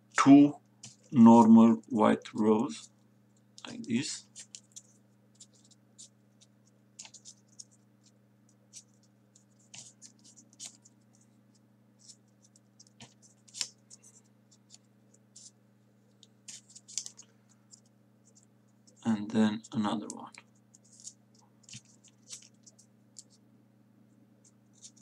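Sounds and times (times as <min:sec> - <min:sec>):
paper rustling and clicking: 0:03.6 - 0:11.2, 0:12.0 - 0:15.5, 0:16.2 - 0:19.0, 0:19.6 - 0:23.4, 0:24.4 - 0:25.0.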